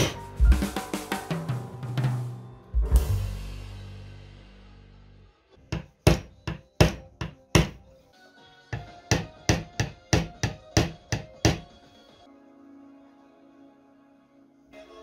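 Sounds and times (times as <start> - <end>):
hammer tapping wood: 5.7 - 7.8, 8.8 - 11.7.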